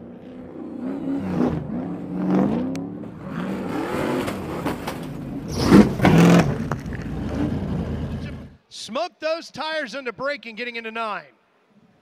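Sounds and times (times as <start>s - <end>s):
truck engines revving: 0.0s - 8.6s
trucks crashing: 1.0s - 8.6s.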